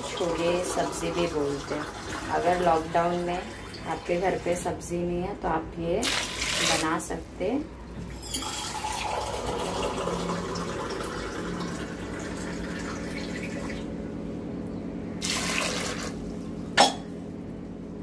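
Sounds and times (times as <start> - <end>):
water running into a steel pot: 15.2 - 16.2.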